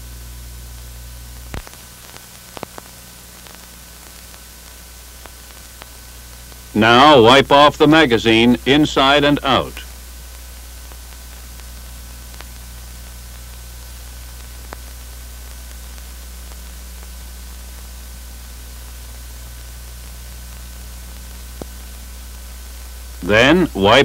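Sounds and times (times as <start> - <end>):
film soundtrack hiss and hum: 0.0 - 24.0
faint clicks: 10.8 - 13.6, 14.2 - 17.1.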